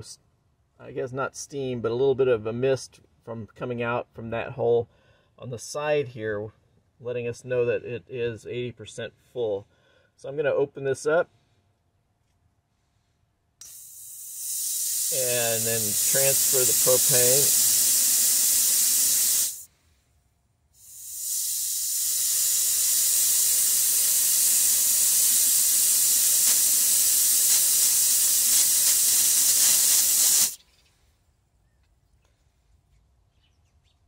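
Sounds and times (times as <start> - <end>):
propane gas hissing: 13.6 - 19.7, 20.8 - 30.6.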